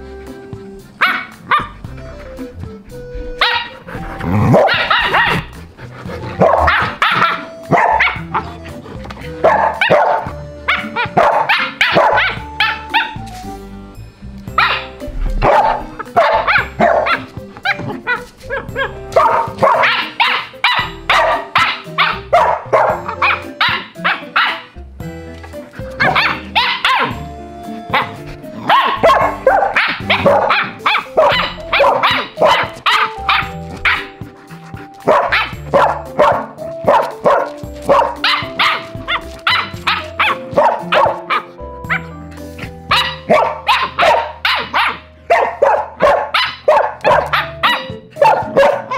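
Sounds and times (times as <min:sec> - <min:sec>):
background music with sustained tones: 0:00.0 - 0:48.9
dog barking: 0:01.0 - 0:01.8, 0:03.4 - 0:03.8, 0:04.5 - 0:05.6, 0:06.4 - 0:08.6, 0:09.4 - 0:13.2, 0:14.6 - 0:24.7, 0:26.0 - 0:27.2, 0:27.9 - 0:34.2, 0:35.0 - 0:42.1, 0:42.9 - 0:48.9.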